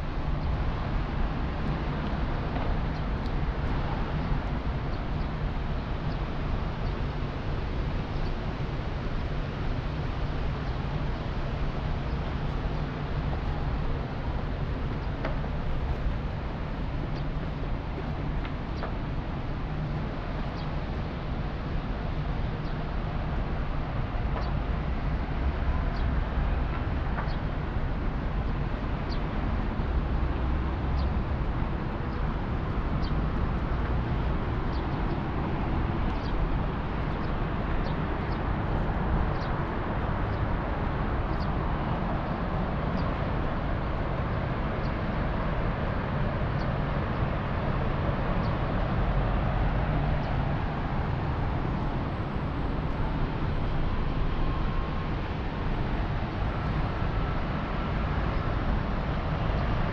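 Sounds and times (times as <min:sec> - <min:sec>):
constant low rush: 0:00.0 - 0:59.9.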